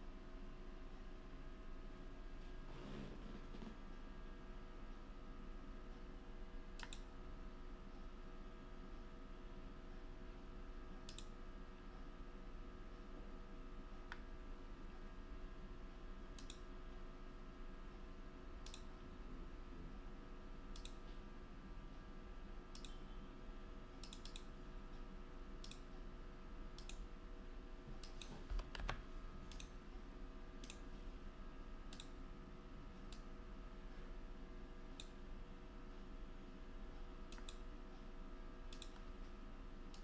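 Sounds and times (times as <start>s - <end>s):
steady electrical hum: 0.0s - 40.0s
computer mouse clicks: 6.8s - 7.1s, 11.0s - 11.4s, 14.0s - 14.3s, 16.4s - 16.7s, 18.6s - 18.9s, 20.7s - 21.2s, 22.7s - 23.0s, 24.0s - 24.6s, 25.6s - 26.0s, 26.8s - 27.1s, 27.9s - 29.8s, 30.6s - 31.0s, 31.9s - 32.2s, 33.0s - 33.3s, 34.9s - 35.2s, 37.3s - 37.7s, 38.7s - 39.3s.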